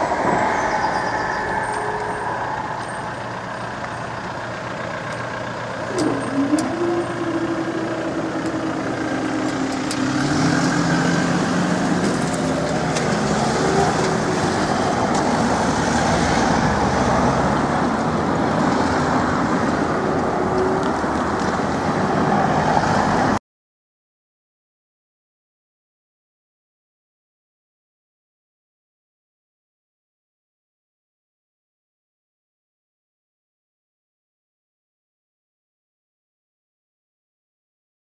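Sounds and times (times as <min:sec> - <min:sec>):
train motor whine: 0:00.0 - 0:05.3, 0:05.9 - 0:17.2
train wheels rumbling on rails: 0:00.0 - 0:23.4.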